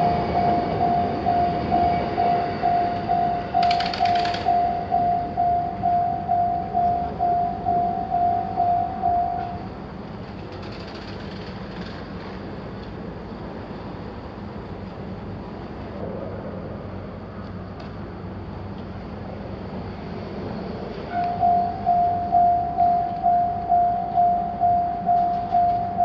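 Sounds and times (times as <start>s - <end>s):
railway crossing alarm tone: 0.0s - 9.8s, 21.1s - 26.0s.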